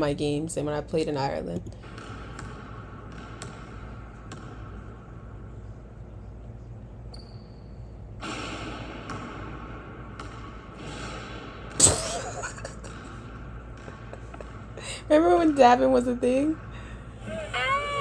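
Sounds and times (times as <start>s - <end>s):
low room hum: 0.0s - 18.0s
basketball bouncing on court floor: 1.8s - 5.1s, 7.1s - 12.0s, 12.8s - 16.6s.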